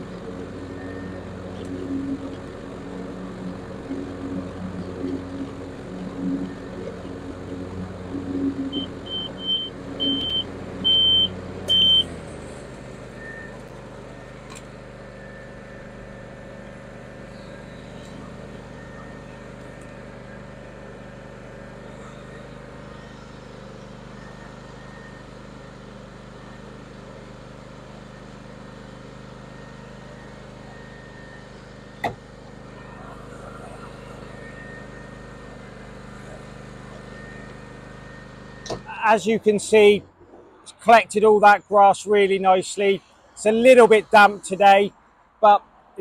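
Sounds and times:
ride-on mower engine running: 0.0s - 46.0s
loud electronic beeps: 0.4s - 12.3s.

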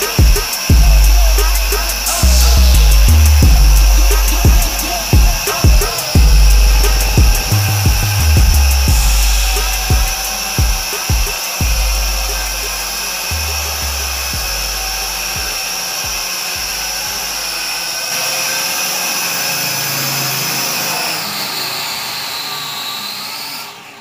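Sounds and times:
music with bass beat: 0.0s - 17.8s
toy drone motors whining: 0.0s - 24.0s.

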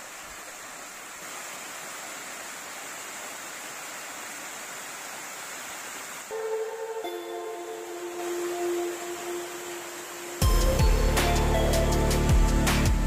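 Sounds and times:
waterfall rushing: 0.0s - 13.0s
music: 6.3s - 13.0s.

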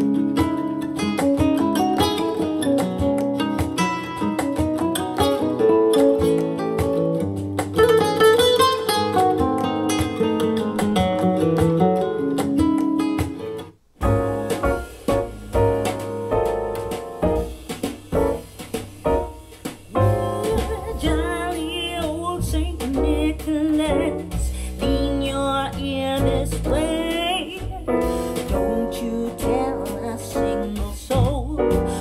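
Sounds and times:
piano chords: 7.9s - 32.0s
person singing: 20.0s - 32.0s.

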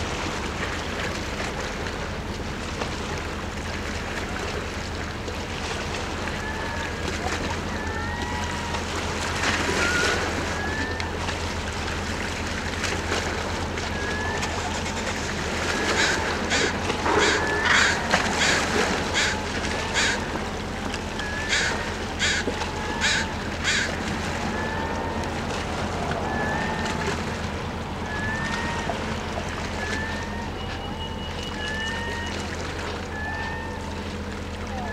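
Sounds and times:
ferry engines droning: 0.0s - 34.9s
crow cawing: 16.0s - 20.3s, 21.3s - 24.0s.

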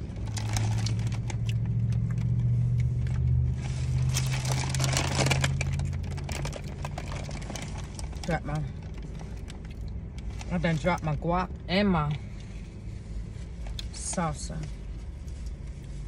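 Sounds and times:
foil wrapper and paper bag crinkling: 0.0s - 11.2s
low vehicle hum: 0.0s - 16.0s.

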